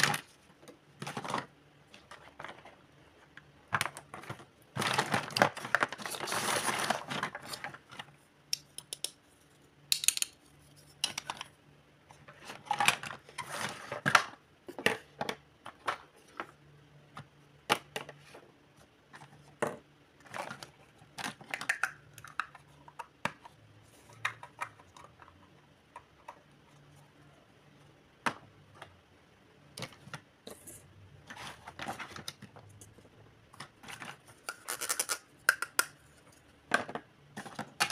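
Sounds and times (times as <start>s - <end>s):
plastic toys clattering: 0.0s - 2.9s, 3.7s - 8.1s, 9.9s - 11.5s, 12.2s - 16.5s, 19.1s - 26.5s, 29.7s - 37.9s.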